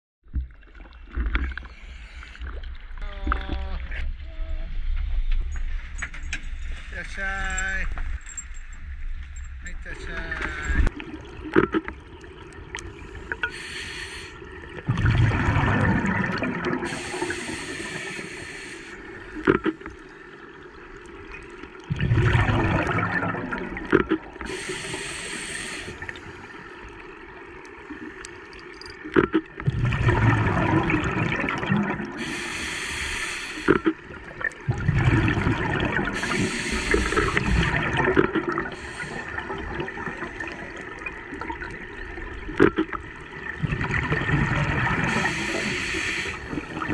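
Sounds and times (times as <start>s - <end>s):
regulator inhale hiss: 13.5s - 14.5s, 16.9s - 19.4s, 24.4s - 26.8s, 32.2s - 33.9s, 36.2s - 37.5s, 38.7s - 39.4s, 45.1s - 46.5s
rumbling exhaust bubbles: 14.4s - 18.1s, 19.0s - 25.4s, 28.8s - 32.6s, 33.6s - 46.9s.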